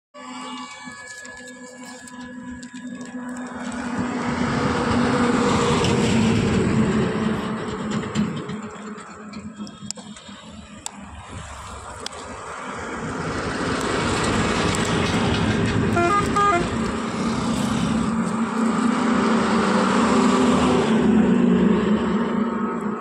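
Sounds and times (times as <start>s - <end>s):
vehicle engine running: 2.9s - 23.0s
double horn toot: 15.7s - 17.0s.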